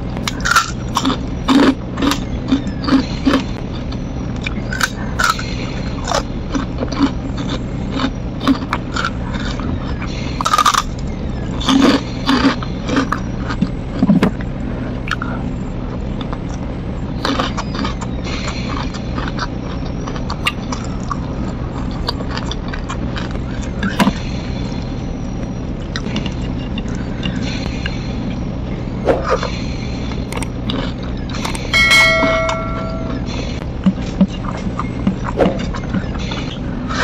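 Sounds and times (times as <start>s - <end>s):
steady low hum: 0.0s - 37.0s
chewing and crunching: 0.1s - 25.0s, 25.8s - 27.7s, 30.1s - 31.8s, 33.8s - 37.0s
notification bell chime: 31.8s - 33.2s.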